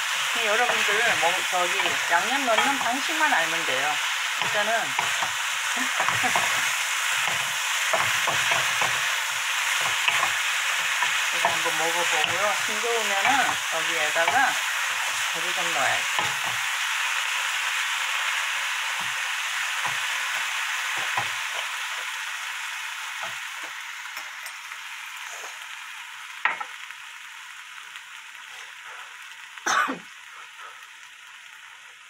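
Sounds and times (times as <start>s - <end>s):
food sizzling in a frying pan: 0.0s - 32.0s
wooden spatula stirring and knocking: 0.5s - 15.3s.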